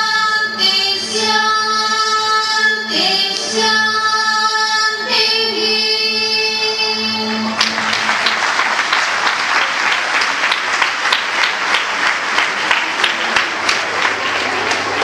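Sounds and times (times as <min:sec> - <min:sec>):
audience applause: 0:07.4 - 0:15.0.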